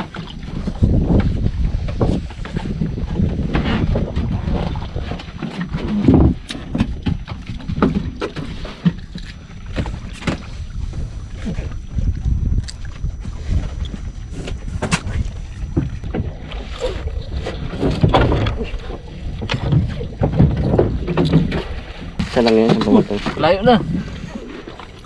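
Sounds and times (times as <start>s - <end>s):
low rumble of wind and water: 0.0s - 25.0s
gear knocking on wooden boat: 17.5s - 23.9s.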